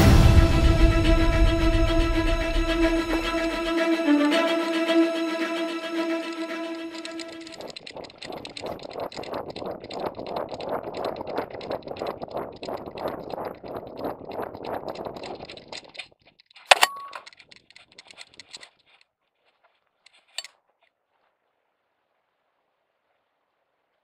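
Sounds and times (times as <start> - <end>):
harness jangling and rattling: 7.0 - 13.1, 14.5 - 19.1
sharp click with ringing tone: 16.7 - 17.4.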